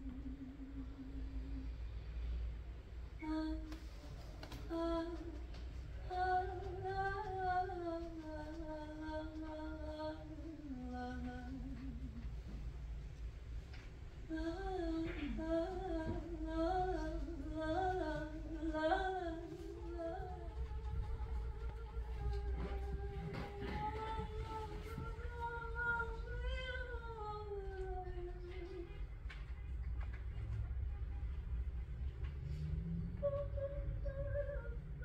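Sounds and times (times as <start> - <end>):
woman singing wordlessly: 0.0 - 1.8, 3.2 - 12.4, 14.3 - 29.1, 33.2 - 35.0.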